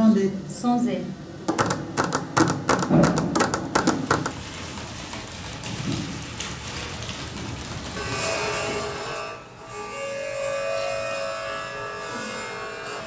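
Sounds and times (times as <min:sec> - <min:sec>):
paper crumpling and rustling: 0:04.3 - 0:09.1.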